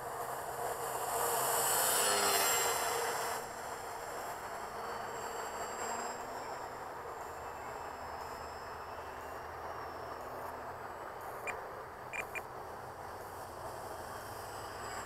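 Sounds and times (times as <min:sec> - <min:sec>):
distant model plane motor whine: 0:00.0 - 0:12.5
open-air noise: 0:00.0 - 0:15.0
short high chirps: 0:12.2 - 0:12.4.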